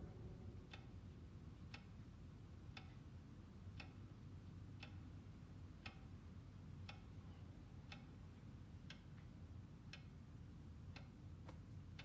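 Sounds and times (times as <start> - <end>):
clock ticking faintly: 0.0 - 12.0
low steady room hum: 0.0 - 12.0.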